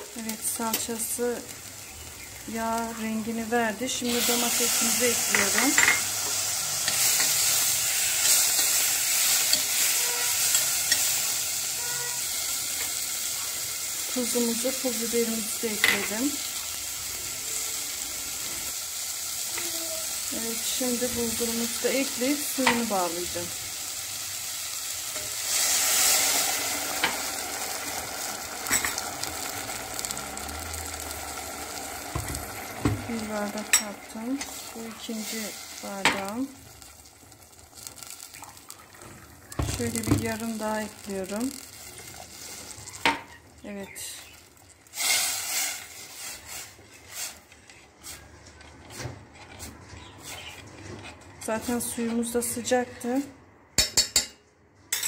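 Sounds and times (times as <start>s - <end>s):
bubbling sizzle: 0.0s - 48.9s
water hissing in hot pan: 0.2s - 43.4s, 44.2s - 47.4s
metal spoon stirring and scraping pot: 4.0s - 13.5s, 33.2s - 36.9s, 45.0s - 52.4s.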